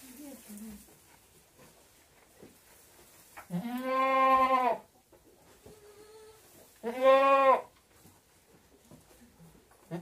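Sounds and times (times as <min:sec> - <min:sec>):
goat bleating: 0:03.5 - 0:04.9, 0:05.9 - 0:07.7.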